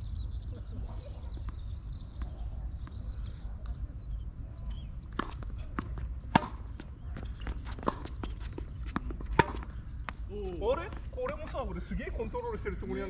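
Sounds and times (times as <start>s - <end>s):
steady low rumble: 0.0s - 13.0s
tennis ball bouncing on court: 5.1s - 10.2s
tennis ball hit with rackets: 5.2s - 6.8s, 7.7s - 9.7s.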